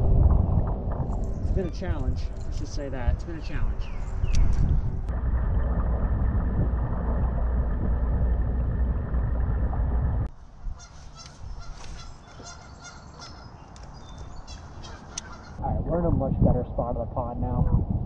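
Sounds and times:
wind rumble: 0:00.0 - 0:18.0
geese honking: 0:10.7 - 0:13.7, 0:14.4 - 0:15.6.

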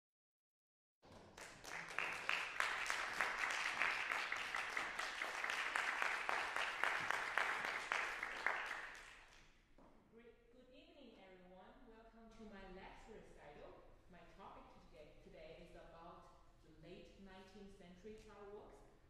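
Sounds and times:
audience applauding: 0:01.1 - 0:09.4.

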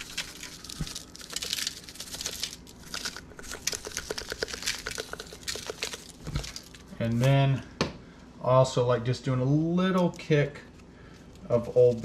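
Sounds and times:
shaker rattling: 0:00.0 - 0:06.9
aluminium foil crinkling: 0:00.0 - 0:07.4, 0:11.2 - 0:12.0.

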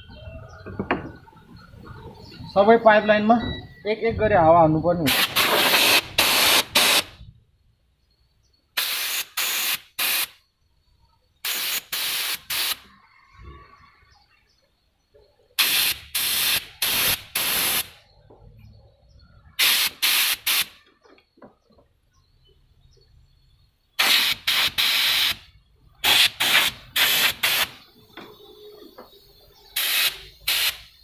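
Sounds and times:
air blow gun hissing blasts: 0:05.0 - 0:07.2, 0:08.8 - 0:10.4, 0:11.4 - 0:12.9, 0:15.6 - 0:18.0, 0:19.6 - 0:20.8, 0:24.0 - 0:27.9, 0:29.8 - 0:31.0.

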